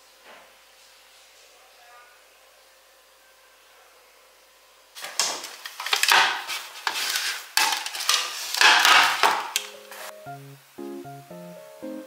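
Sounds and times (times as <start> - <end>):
cloth rustling: 5.0 - 10.1
metal baking tray scraping: 5.4 - 10.1.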